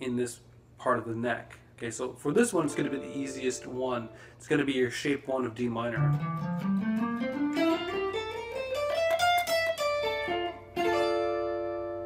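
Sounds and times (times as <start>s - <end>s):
electric guitar scale: 2.5s - 4.2s, 6.0s - 12.0s
electric guitar chord ringing: 2.5s - 4.4s, 6.0s - 12.0s.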